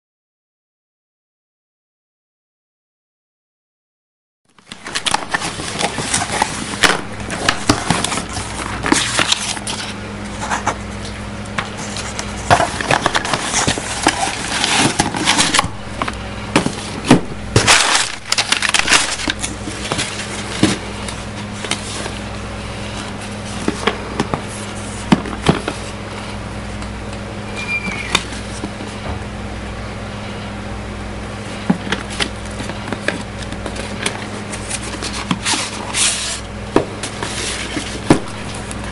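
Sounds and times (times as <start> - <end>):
steady low hum: 4.5 - 38.9
packaging rustling and clicking: 4.6 - 22.3.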